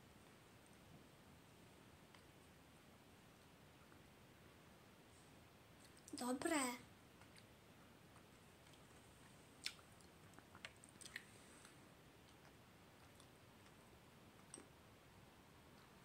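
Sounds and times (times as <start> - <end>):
person chewing: 8.2 - 13.8.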